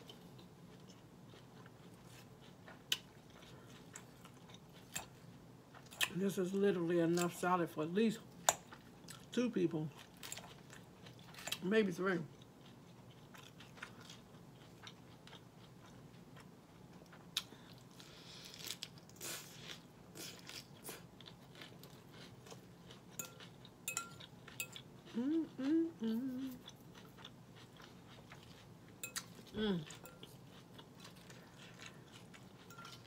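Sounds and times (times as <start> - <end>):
chewing and crunching salad: 0.0 - 33.0
person humming: 25.1 - 26.6, 29.5 - 30.0.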